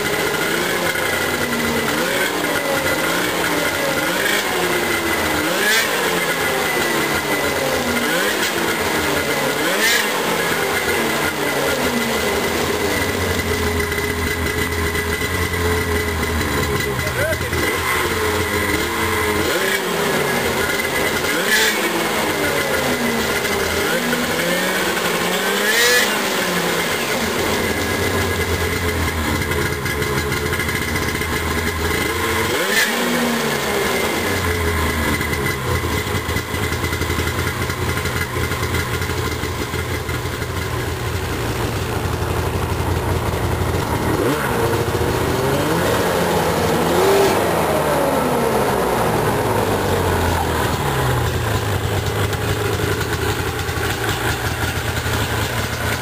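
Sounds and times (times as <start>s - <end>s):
snowmobile engine idling and revving: 0.0s - 56.0s.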